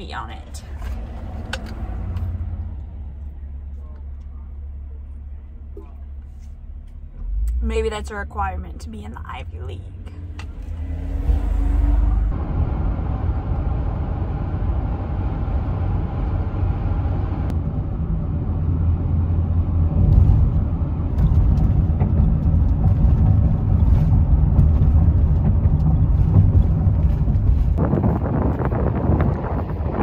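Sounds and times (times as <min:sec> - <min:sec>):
low road rumble in car: 0:00.0 - 0:30.0
wind buffeting microphone: 0:21.2 - 0:30.0.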